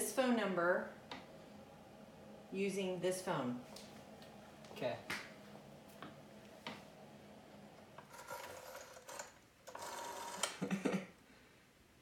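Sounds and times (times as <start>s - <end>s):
rotary telephone dial whirring: 7.9s - 10.6s.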